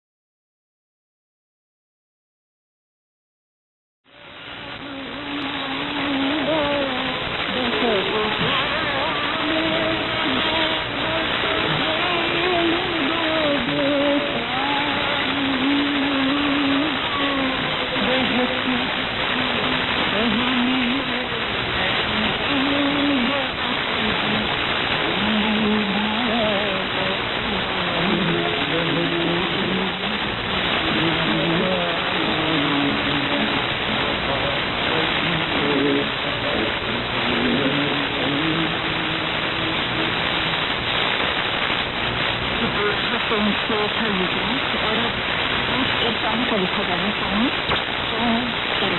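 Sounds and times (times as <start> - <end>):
faint radio programme audio: 4.1 - 48.9
radio static hiss: 4.1 - 48.9.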